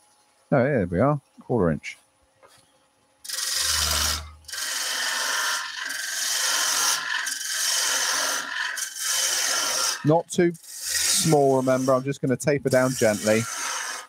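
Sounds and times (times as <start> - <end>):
gouge cutting wood on lathe: 3.2 - 14.0.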